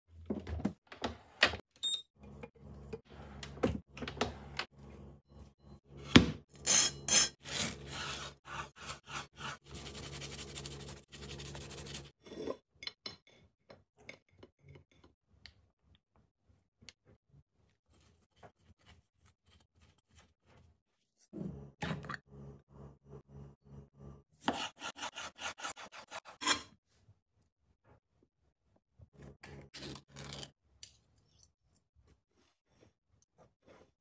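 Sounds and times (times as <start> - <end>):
knife sawing through toast: 7.4 - 12.1.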